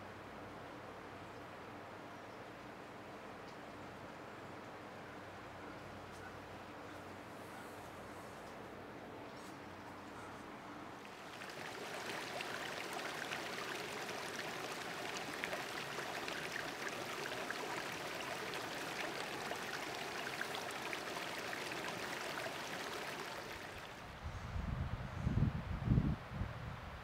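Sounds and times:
stream running over rocks: 0:11.0 - 0:24.0.

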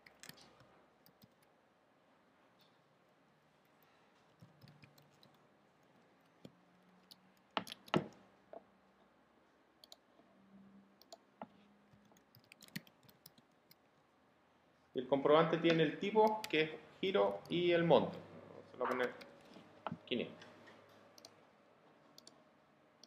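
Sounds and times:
computer keyboard keystrokes: 0:12.0 - 0:13.4.

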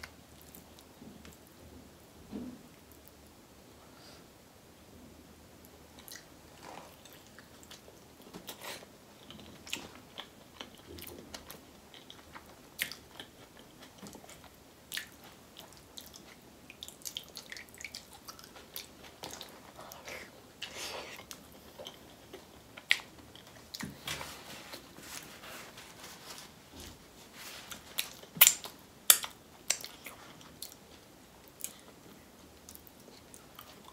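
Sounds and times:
chewing with mouth clicks: 0:06.0 - 0:24.0, 0:27.7 - 0:30.8.

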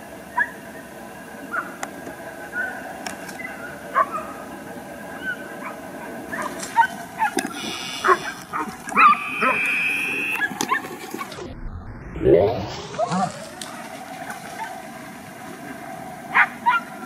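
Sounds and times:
dogs barking and yelping: 0:02.5 - 0:04.4, 0:05.1 - 0:11.5, 0:16.3 - 0:17.0
steady high tone: 0:09.0 - 0:10.5, 0:11.4 - 0:13.3.

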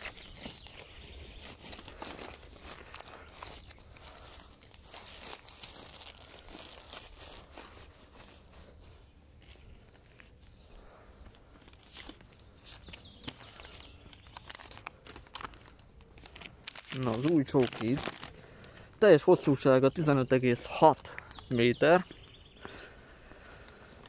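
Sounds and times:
rustling and crackling: 0:00.0 - 0:24.0
footsteps on dirt path: 0:22.0 - 0:24.0.

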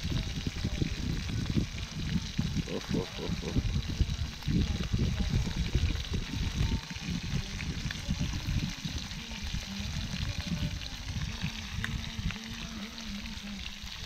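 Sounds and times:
fish sizzling in oil: 0:00.0 - 0:14.0.

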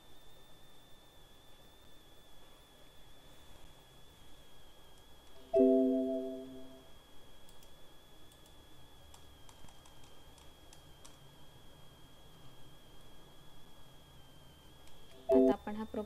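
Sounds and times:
chime tone: 0:05.5 - 0:06.8.

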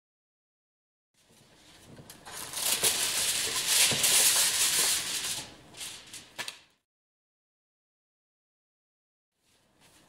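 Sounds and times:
kitchen foil crinkling: 0:01.5 - 0:06.7.

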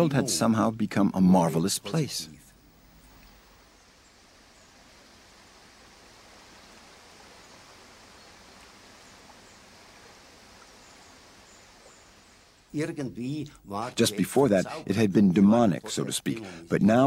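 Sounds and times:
faint rushing noise: 0:02.2 - 0:12.8.

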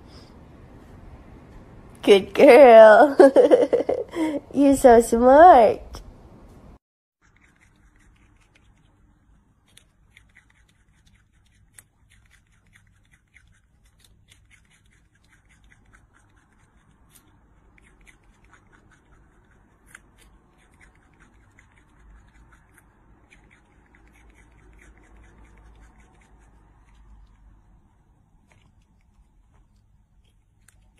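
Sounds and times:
rodent gnawing and crunching: 0:07.2 - 0:30.9.

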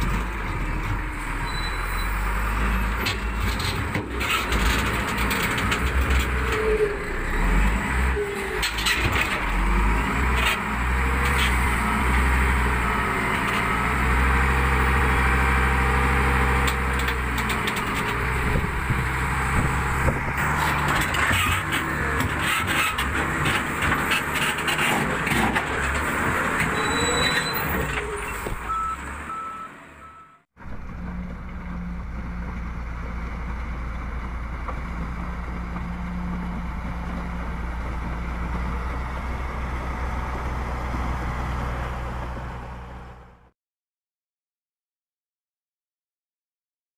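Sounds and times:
diesel engine under load: 0:00.0 - 0:43.5
reversing alarm beeping: 0:28.7 - 0:30.4.

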